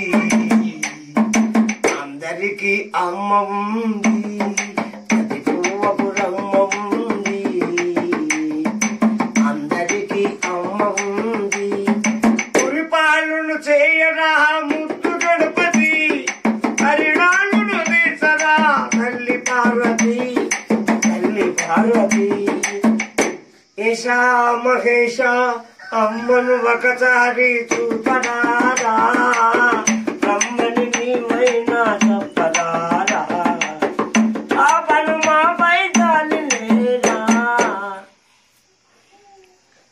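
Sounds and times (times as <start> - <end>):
hand clappers clacking: 0.0 - 2.1, 4.0 - 12.8, 14.7 - 23.4, 27.7 - 37.8
man singing folk song: 0.0 - 38.2.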